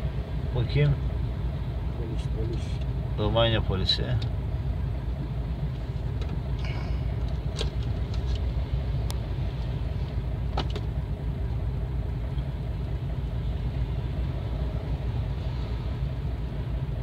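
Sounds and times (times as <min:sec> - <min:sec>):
car engine rumble from inside: 0:00.0 - 0:17.0.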